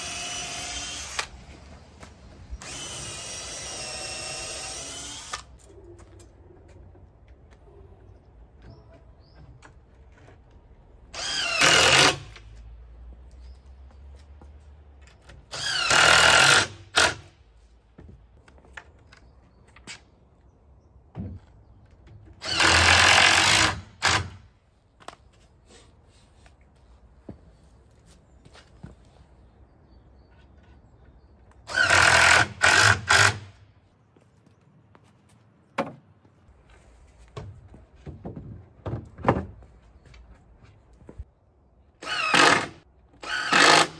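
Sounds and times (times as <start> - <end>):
cordless drill driving screw: 0.0 - 1.4, 2.6 - 5.5
cordless drill driving screws: 0.0 - 1.4, 2.6 - 5.6, 11.2 - 12.4, 15.5 - 17.3, 22.4 - 24.4, 31.7 - 33.5, 42.0 - 43.9.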